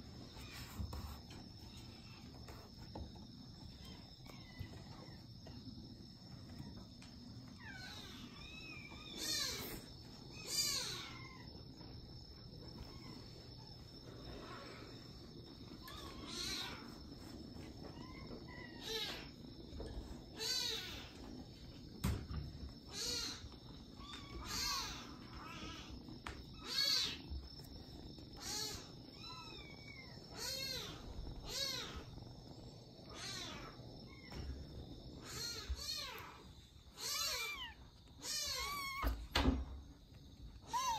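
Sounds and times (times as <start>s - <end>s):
kitten meowing: 37.0s - 39.2s.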